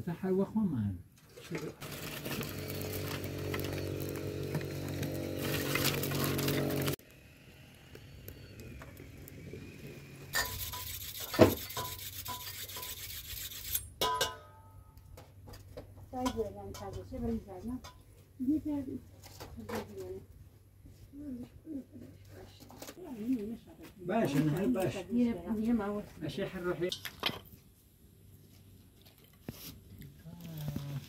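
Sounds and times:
hands scraping dough in metal bowl: 10.4 - 13.8.

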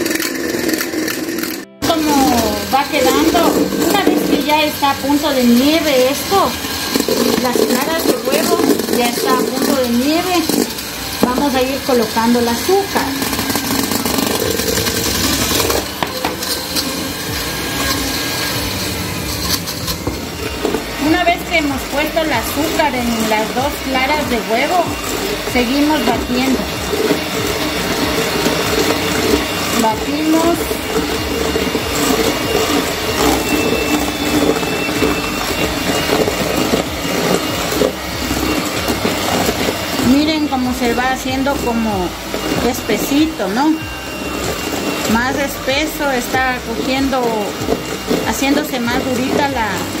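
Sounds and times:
beaters clicking against metal bowl: 0.0 - 50.0
electric hand mixer running: 0.0 - 50.0.

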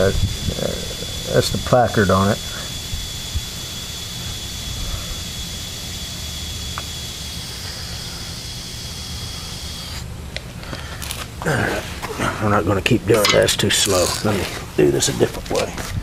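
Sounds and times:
faint steady whistle: 0.0 - 10.0
air hissing through hose: 0.0 - 10.1.

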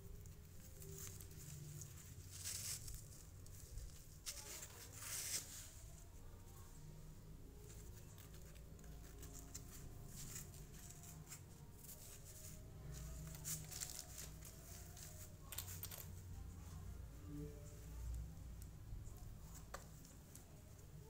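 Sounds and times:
faint fabric rustling: 0.0 - 21.0.

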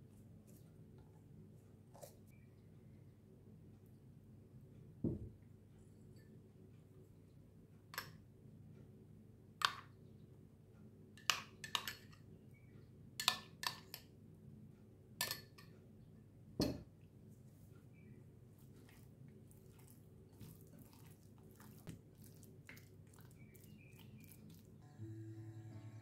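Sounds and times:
glass bottle set down on table: 5.0 - 5.3, 16.6 - 16.9.

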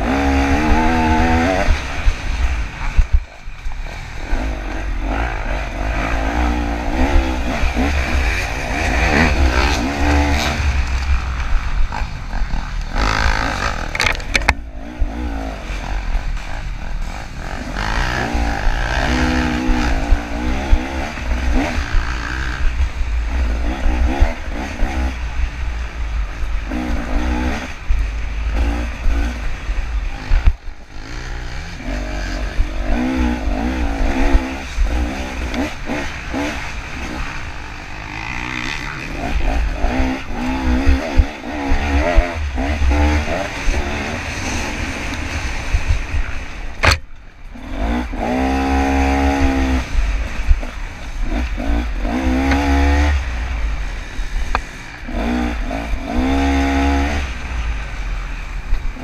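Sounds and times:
dirt bike engine revving: 0.0 - 59.0
sharp knock: 46.8 - 47.1.

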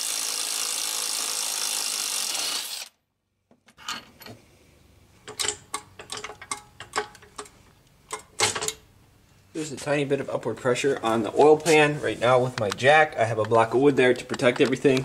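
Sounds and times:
cordless impact tool running: 0.0 - 3.0
metal parts clicking and rattling: 5.2 - 8.8.

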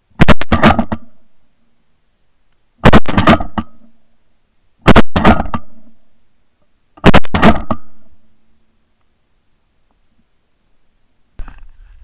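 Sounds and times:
shotgun shots with echo: 0.2 - 1.1, 2.8 - 3.8, 4.8 - 5.9, 7.0 - 8.1.

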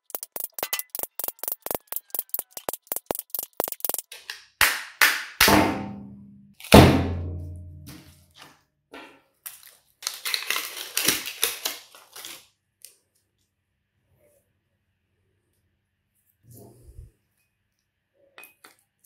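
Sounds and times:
steel laminations rattling and scraping: 0.0 - 4.1.

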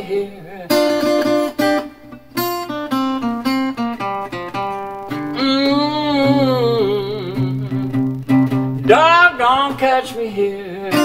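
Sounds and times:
acoustic guitar fingerpicking: 0.6 - 11.0
person singing wordless note: 5.3 - 8.0, 8.8 - 10.2.

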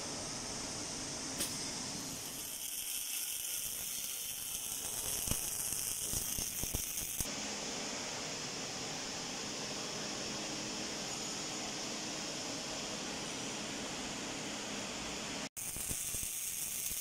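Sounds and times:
welding arc hissing and crackling: 1.4 - 7.3, 15.6 - 17.0.

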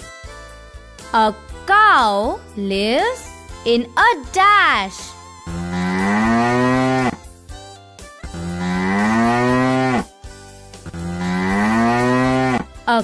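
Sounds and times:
cow mooing: 5.5 - 7.2, 8.4 - 10.1, 10.9 - 12.7.

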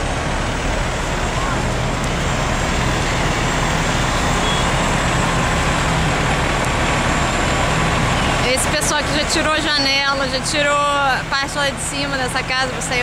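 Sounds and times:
diesel engines running: 0.0 - 13.0.

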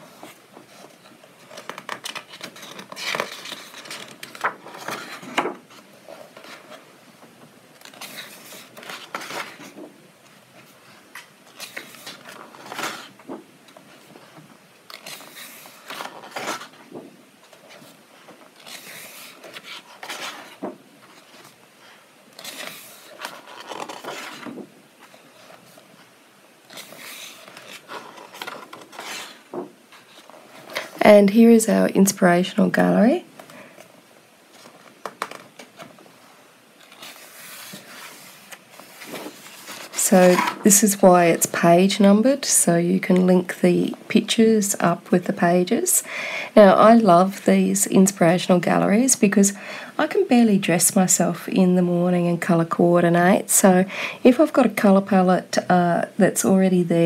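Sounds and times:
paper pages turning: 0.0 - 31.0, 34.5 - 36.1, 36.7 - 42.2.

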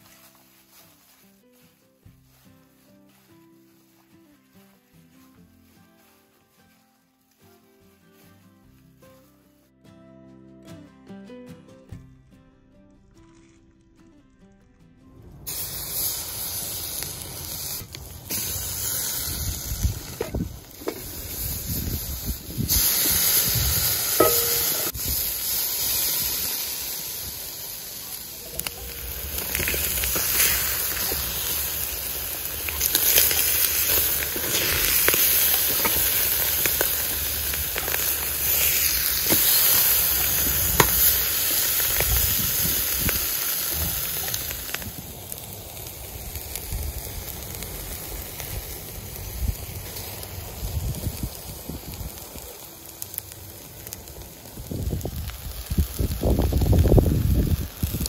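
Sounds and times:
chicken sizzling on a grill: 0.0 - 1.2, 15.5 - 58.0
crackles and pops: 12.9 - 58.0.

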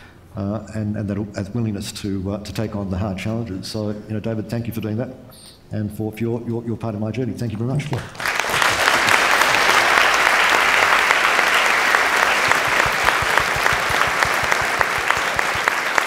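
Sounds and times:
audience applauding: 7.9 - 16.0.

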